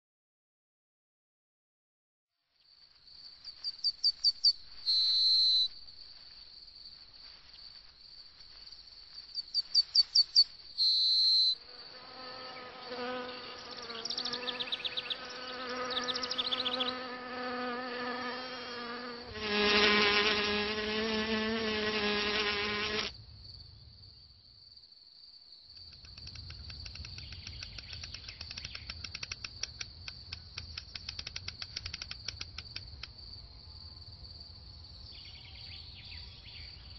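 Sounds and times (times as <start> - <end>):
high-pitched cricket trill: 2.6 - 36.9
fast pulsing insect chirr: 9.2 - 23.2, 25.7 - 33.4
flying insect buzzing: 11.6 - 23.2.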